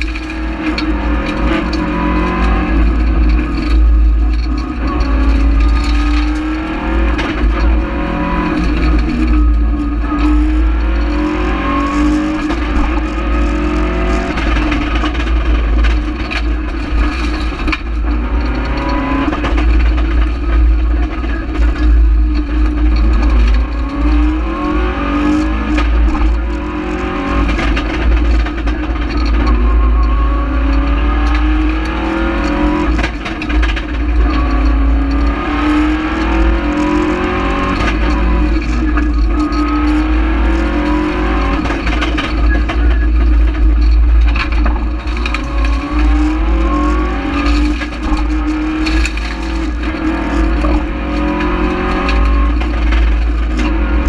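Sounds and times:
low road rumble: 0.0 - 54.0
rally car engine revving: 0.0 - 54.0.

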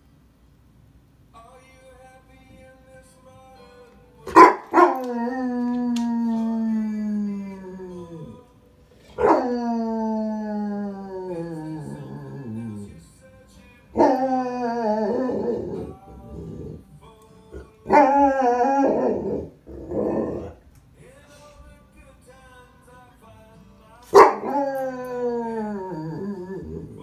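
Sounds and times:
dog howling: 4.3 - 8.4, 9.0 - 13.0, 14.0 - 16.9, 17.6 - 20.6, 24.2 - 27.0.

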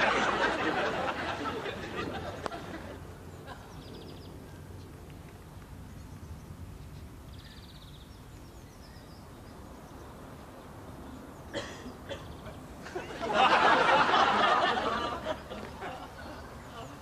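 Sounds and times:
audience laughter: 0.0 - 3.8, 12.8 - 16.9
faint outdoor ambience: 0.0 - 17.0
bird chirping: 3.3 - 5.2, 5.8 - 12.8.

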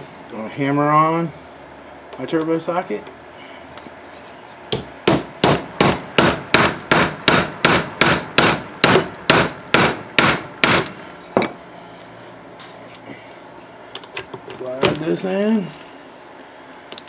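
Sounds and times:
hammer striking metal: 4.8 - 11.1.

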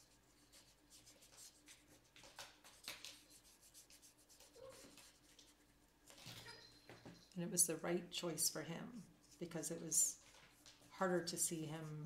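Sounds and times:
paintbrush strokes on paper: 0.0 - 5.9, 9.0 - 12.0
low room hum: 0.0 - 12.0.

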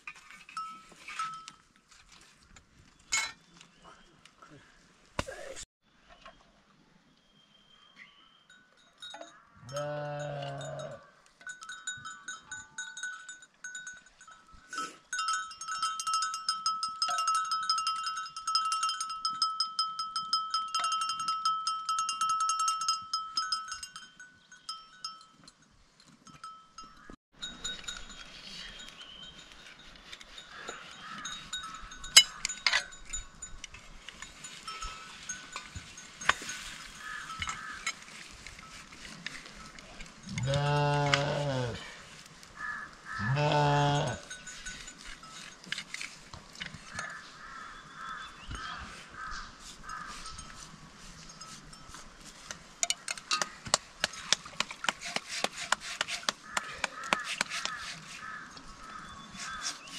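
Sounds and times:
livestock neck bells jangling: 0.0 - 1.8, 8.5 - 41.5, 43.7 - 59.9
sheep bleating: 9.7 - 11.0, 40.3 - 41.9, 43.2 - 44.2.

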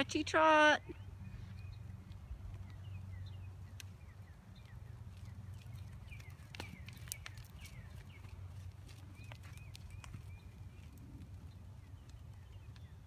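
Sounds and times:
small birds chirping: 0.4 - 13.0
horse hoofbeats on sand: 4.5 - 12.9.

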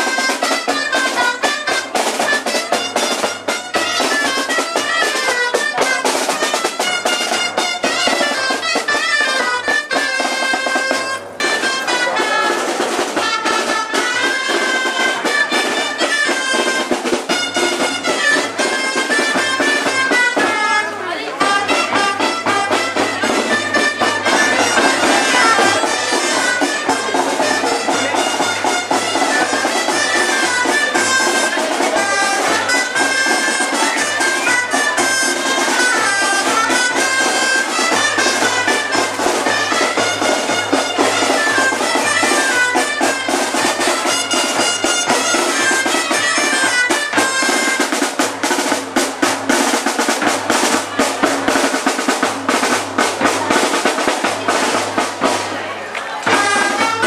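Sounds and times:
drum beating: 0.0 - 57.0
woodwind pipe melody: 0.0 - 57.0.

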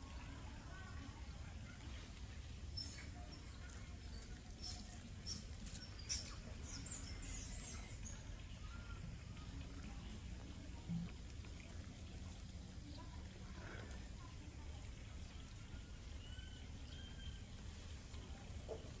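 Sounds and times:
baby monkey squeaks and squeals: 2.7 - 8.3, 15.7 - 17.5.

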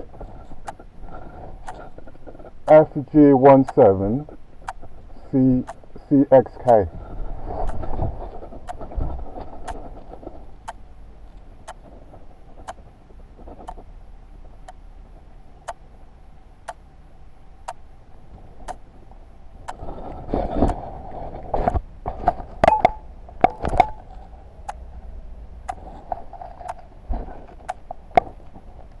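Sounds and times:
faint steady hum: 0.0 - 29.0
wristwatch ticking: 2.7 - 4.0.

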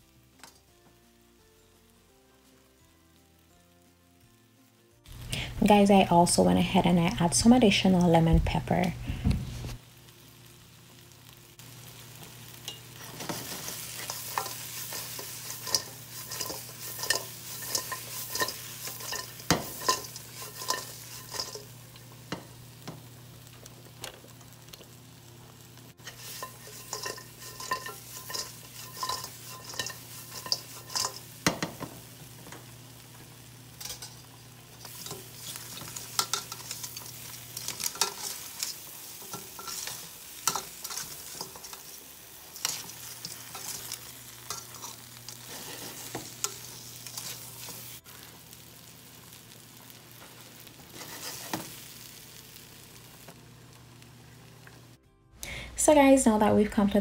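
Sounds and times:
food sizzling in a wok: 0.0 - 57.0
utensil scraping metal pan: 13.0 - 21.7, 26.0 - 31.3, 34.8 - 41.9, 42.6 - 47.8.

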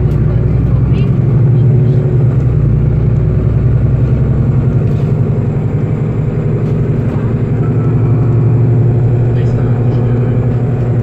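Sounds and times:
bus engine drone from inside: 0.0 - 11.0.

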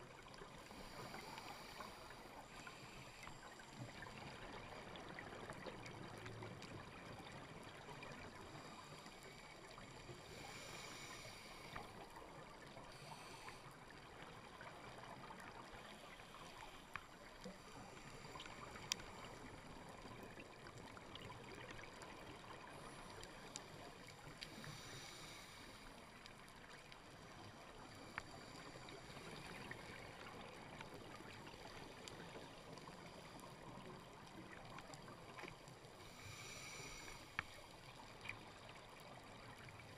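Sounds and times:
faint underwater hiss: 0.0 - 39.9.

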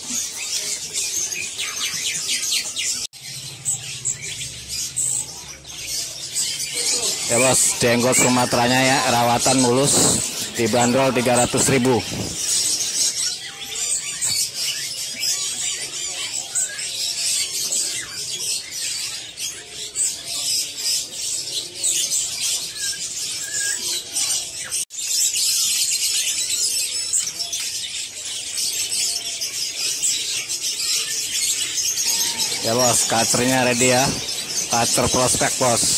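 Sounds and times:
songbirds chirping and twittering: 0.0 - 35.9.

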